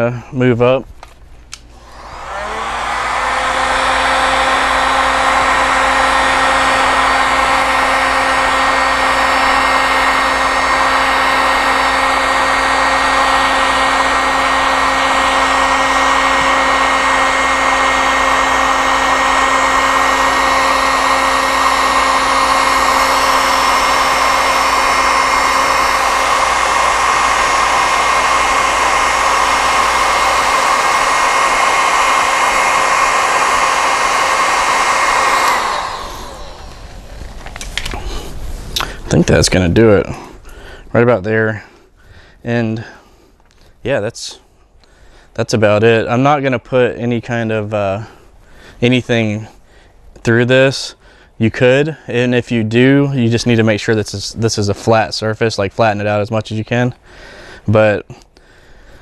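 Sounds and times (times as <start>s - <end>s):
heat gun whirring: 0.4s - 43.8s.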